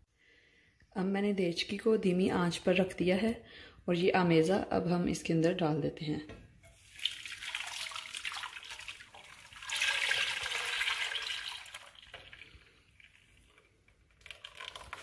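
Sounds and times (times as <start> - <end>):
batter pouring into pot: 6.8 - 15.0.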